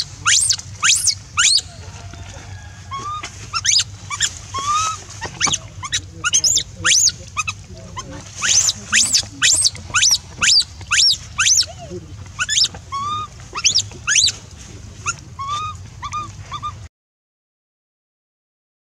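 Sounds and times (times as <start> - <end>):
baby monkey squealing: 0.0 - 2.0, 2.9 - 14.4, 15.0 - 16.8.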